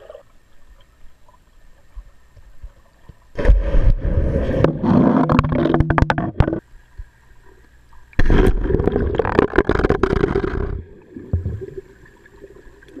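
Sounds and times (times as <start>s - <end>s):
underwater knocks: 4.6s - 6.6s, 8.3s - 11.7s
muffled underwater bubbling: 8.2s - 13.0s.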